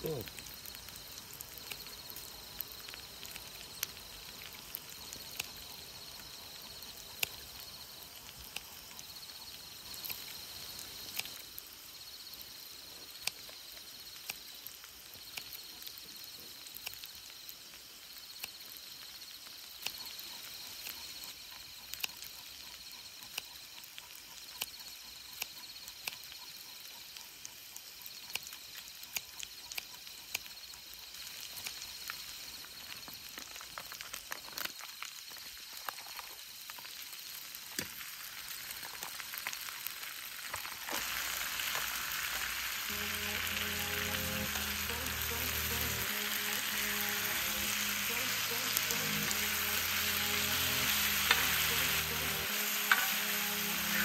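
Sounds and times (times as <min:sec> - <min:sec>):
insects trilling faintly: 0:00.0 - 0:54.0
sharp clicks and ticks: 0:00.0 - 0:54.0.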